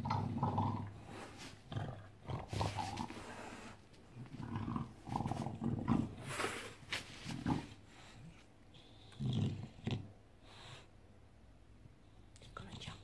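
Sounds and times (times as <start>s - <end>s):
dog grunting and play-growling: 0.0s - 8.3s, 9.1s - 10.1s.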